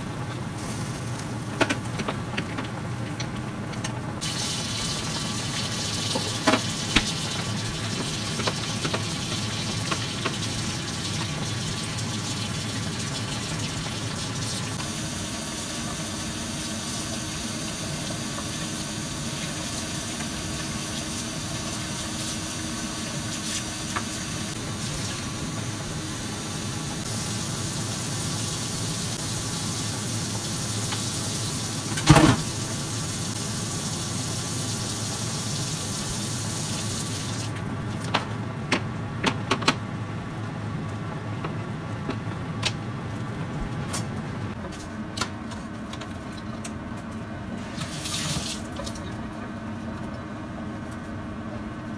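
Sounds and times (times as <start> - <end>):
food sizzling in a pan: 4.2 - 25.5.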